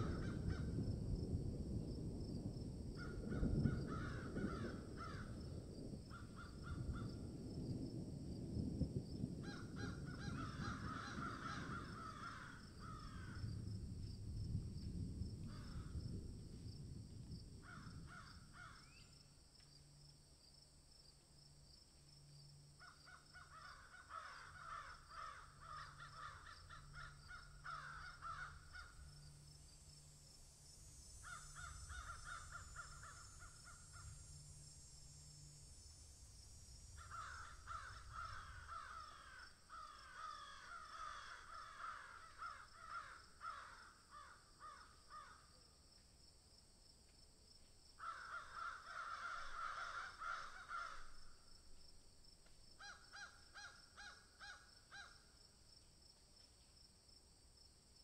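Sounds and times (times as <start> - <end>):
harsh caw-like bird calls: 0.0 - 1.1, 3.0 - 7.4, 9.4 - 13.7, 15.4 - 16.1, 17.6 - 19.2, 22.8 - 29.6, 31.2 - 34.6, 37.0 - 45.5, 48.0 - 51.4, 52.8 - 55.3.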